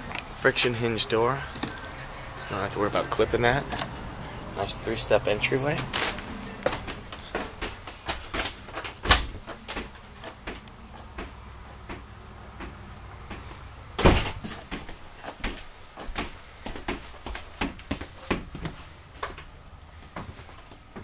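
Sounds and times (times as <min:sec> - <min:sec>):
footsteps on trailer floor: 0:14.3 - 0:19.4.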